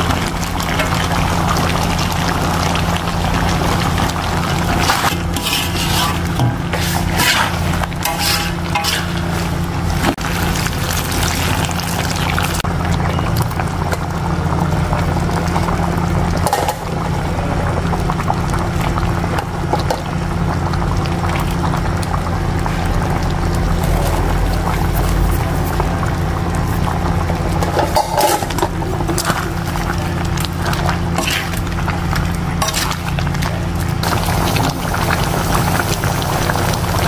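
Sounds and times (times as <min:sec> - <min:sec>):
liquid pouring and splashing: 0:00.0 - 0:12.8, 0:17.8 - 0:37.0
sauce bubbling: 0:00.0 - 0:37.0
steady low hum: 0:12.5 - 0:37.0.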